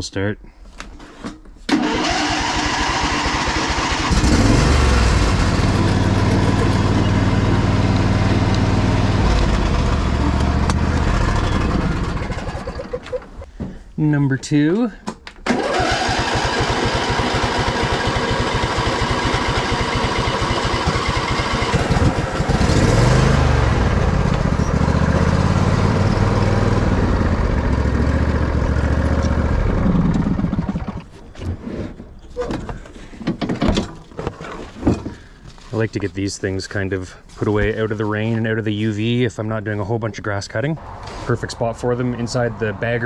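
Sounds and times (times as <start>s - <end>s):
diesel tractor engine rattling: 1.7s - 13.4s, 15.4s - 31.1s.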